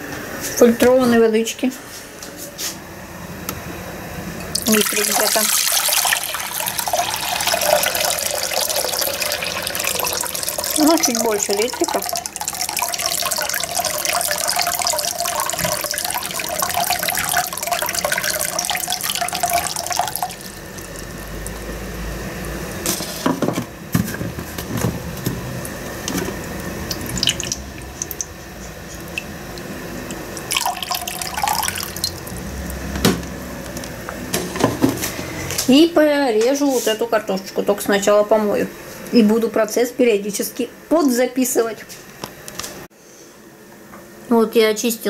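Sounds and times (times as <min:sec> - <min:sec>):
water pouring into ceramic pot: 0:04.5 - 0:22.8, 0:25.6 - 0:32.9.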